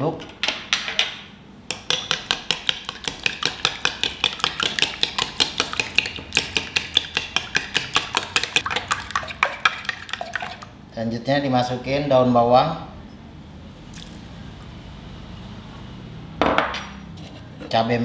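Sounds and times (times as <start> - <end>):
spoon beating eggs in glass bowl: 1.7 - 10.7.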